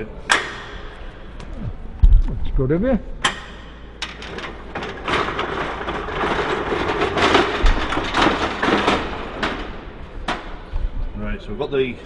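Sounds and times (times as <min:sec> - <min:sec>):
metal stand rolling on concrete: 0:04.0 - 0:10.5.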